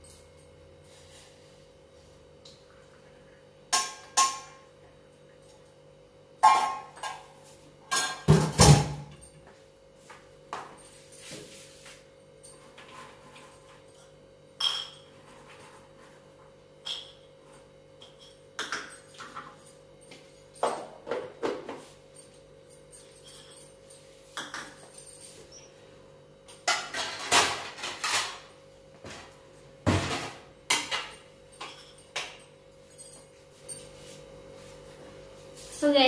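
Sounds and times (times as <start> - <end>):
dishes clinking and knocking: 6.4 - 7.3, 7.9 - 9.3, 14.6 - 15.9, 16.8 - 17.4, 18.0 - 19.6, 20.6 - 21.9, 24.4 - 25.0, 26.6 - 32.5.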